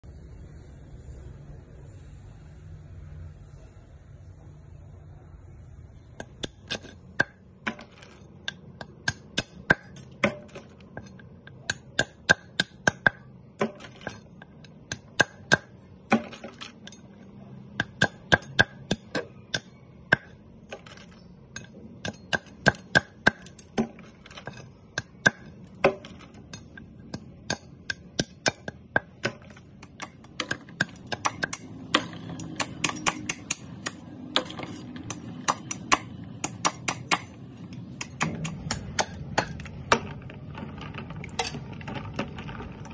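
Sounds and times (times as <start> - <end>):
knife chopping snail shells: 6.2 - 40.0.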